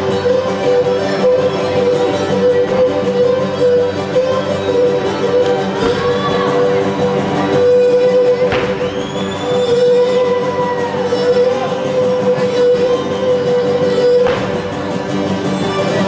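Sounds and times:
bowed fiddle melody: 0.0 - 16.0
lutes strumming: 0.0 - 16.0
sharp thump: 8.5 - 8.9, 14.2 - 14.7.

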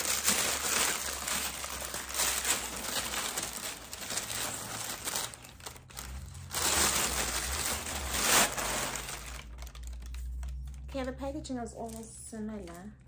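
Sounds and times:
paper wrapping crinkling: 0.0 - 12.8.

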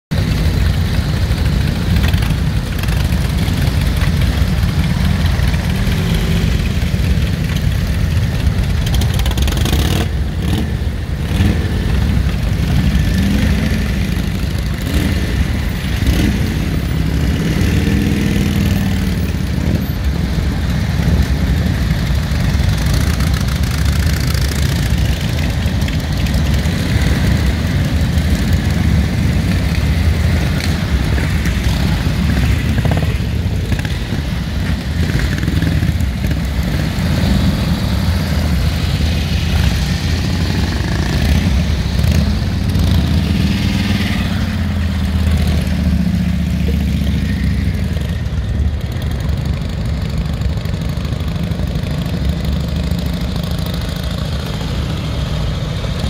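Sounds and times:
motorcycle engines revving: 0.1 - 56.0.

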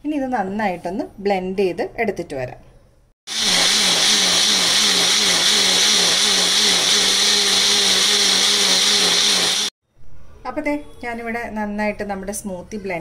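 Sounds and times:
blender motor running: 3.3 - 9.8.

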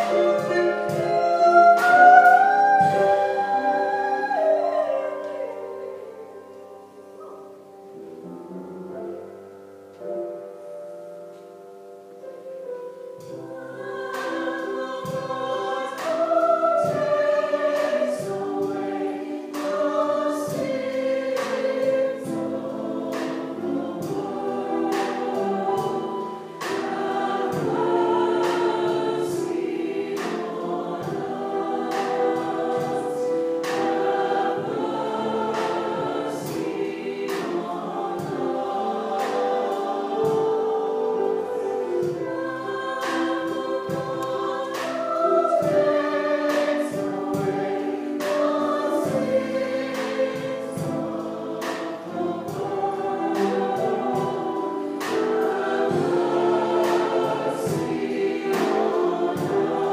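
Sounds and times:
mixed choir singing gospel: 0.0 - 8.4, 13.1 - 59.9
piano: 0.0 - 59.9
drum kit steady beat: 14.2 - 59.9.

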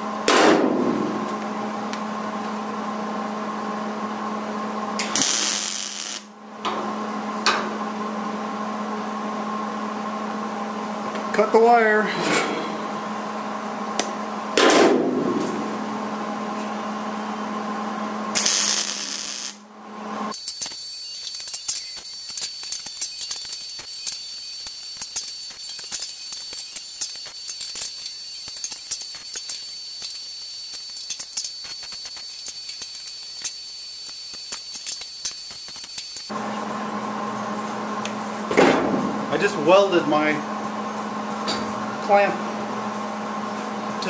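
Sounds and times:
welder crackling sizzle: 5.0 - 6.3, 18.4 - 19.6, 20.3 - 36.3.

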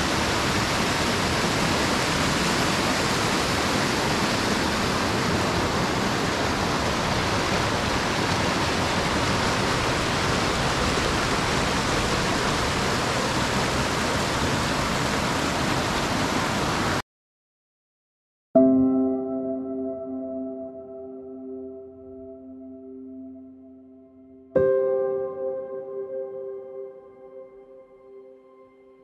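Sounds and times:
whitewater rushing: 0.0 - 17.0.

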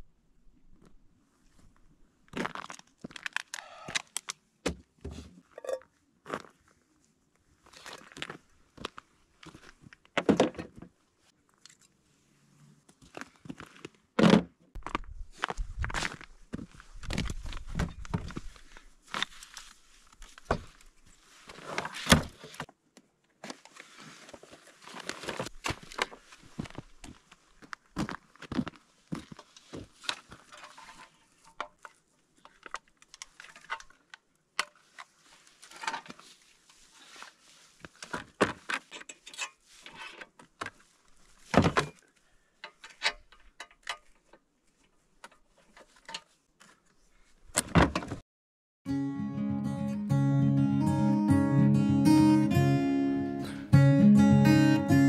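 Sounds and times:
rustling: 16.7 - 22.5.

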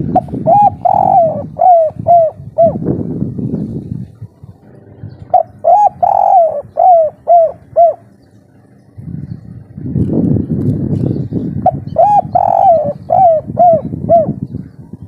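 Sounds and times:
dove cooing: 0.0 - 3.3, 4.0 - 8.8, 11.5 - 15.0
low rumbling noise: 0.0 - 15.0.

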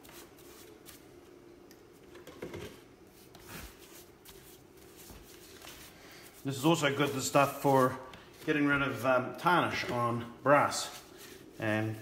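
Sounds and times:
gloved hand scrubbing wet wood: 3.6 - 9.1.

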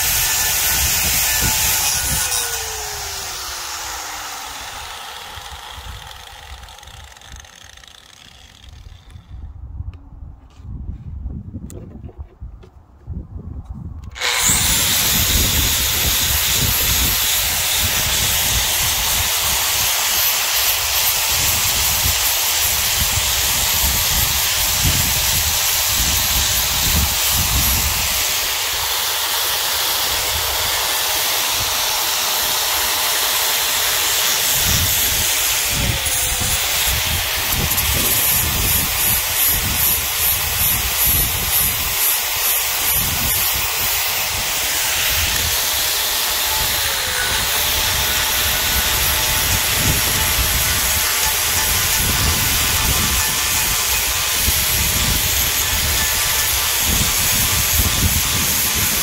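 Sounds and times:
sandblaster air hiss: 14.2 - 59.0.

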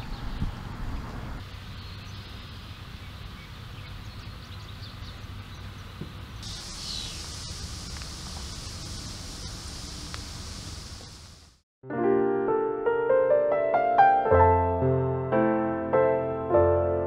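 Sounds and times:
steady high hiss: 6.4 - 11.6
faint bird chirps: 6.6 - 7.4.

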